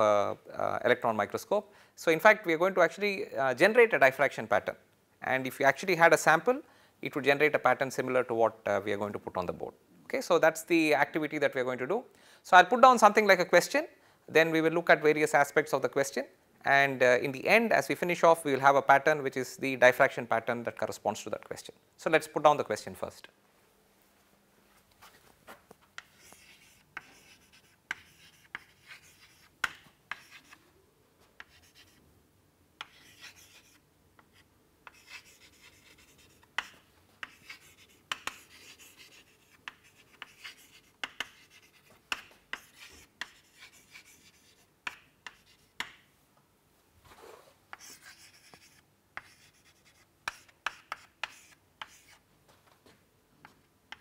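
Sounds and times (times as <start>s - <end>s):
chalk scratching on chalkboard: 26.0s - 30.6s, 31.4s - 32.0s, 32.8s - 45.9s, 47.7s - 52.2s.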